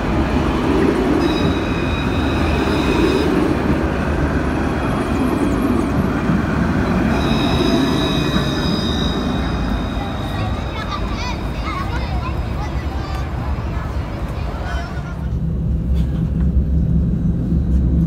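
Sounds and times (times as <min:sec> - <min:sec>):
tram wheels rumbling on rail: 0:00.0 - 0:18.0
high steady squeal: 0:01.1 - 0:03.7, 0:06.7 - 0:11.7.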